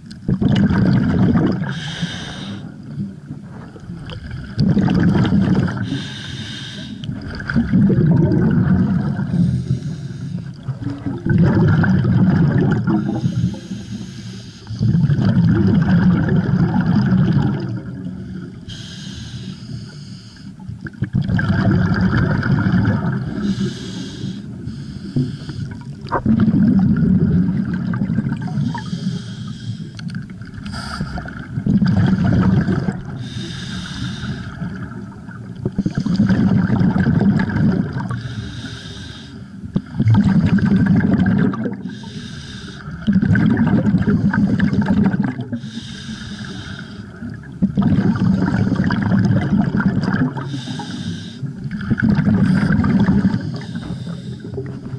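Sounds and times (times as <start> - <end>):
exhaled air bubbling: 0.0 - 54.9
regulator inhale hiss: 1.7 - 2.8, 5.8 - 7.1, 9.3 - 10.6, 13.0 - 14.8, 18.7 - 20.6, 23.4 - 25.8, 28.7 - 30.0, 30.6 - 31.3, 33.2 - 34.6, 38.1 - 39.6, 41.8 - 43.0, 45.6 - 47.3, 50.4 - 51.6, 52.5 - 54.8.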